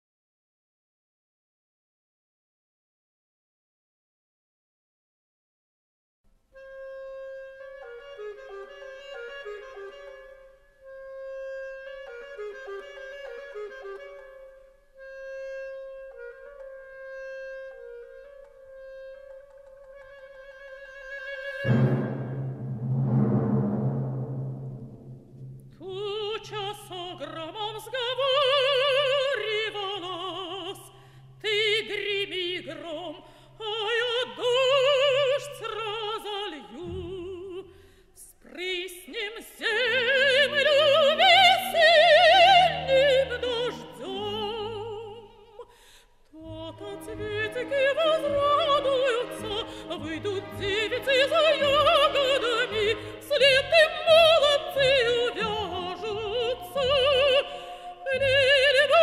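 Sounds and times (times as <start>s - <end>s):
operatic singing with vibrato: 21.3s - 37.6s, 38.5s - 45.6s, 46.4s - 59.0s
orchestra playing: 21.6s - 25.9s.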